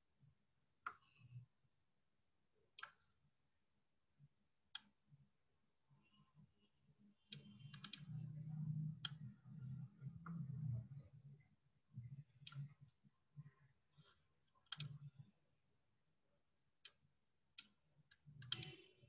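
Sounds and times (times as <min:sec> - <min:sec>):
computer mouse clicks: 0:02.8 - 0:03.2, 0:04.7 - 0:05.0, 0:07.2 - 0:08.2, 0:08.9 - 0:09.3, 0:12.4 - 0:12.8, 0:14.0 - 0:15.2, 0:17.6 - 0:18.9.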